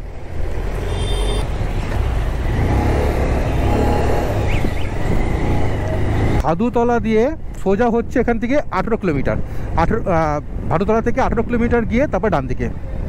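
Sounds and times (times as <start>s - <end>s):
motorcycle engine rumble: 0.0s - 6.5s
road noise: 0.0s - 13.0s.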